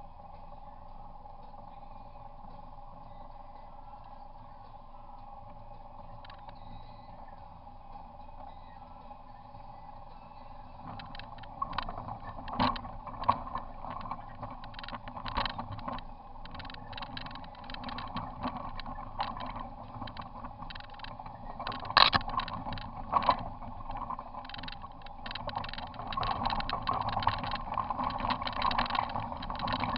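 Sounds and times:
off-road vehicle engine running: 0:00.0 - 0:29.9
knocks and rattles of vehicle: 0:10.8 - 0:29.9.

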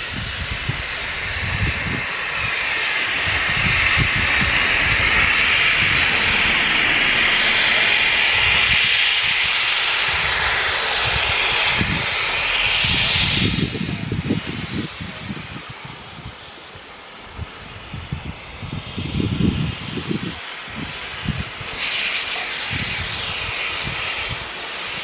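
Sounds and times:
low rumbling gusts: 0:00.0 - 0:24.5.

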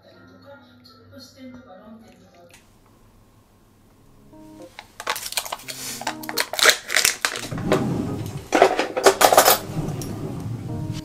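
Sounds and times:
soft plucked background music: 0:00.0 - 0:02.5, 0:03.9 - 0:04.9, 0:05.6 - 0:11.0
foil lid peeled off crinkling: 0:04.6 - 0:07.6.

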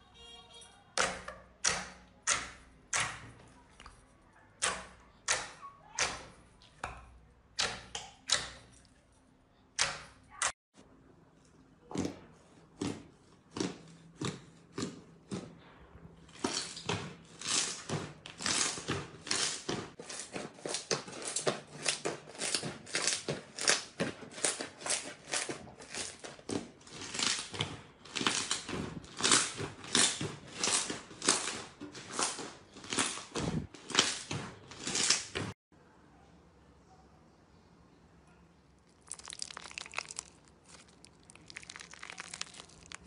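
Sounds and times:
slime squished by hand: 0:38.8 - 0:43.0.

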